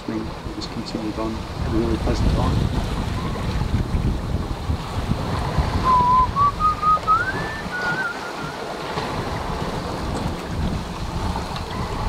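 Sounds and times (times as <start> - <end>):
sea rushing past hull: 0.0 - 12.0
wind buffeting microphone: 0.0 - 12.0
person whistling: 5.8 - 8.6.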